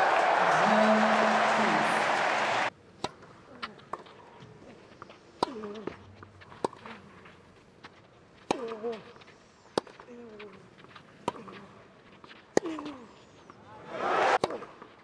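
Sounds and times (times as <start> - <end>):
crowd noise: 0.0 - 2.7, 13.6 - 14.4.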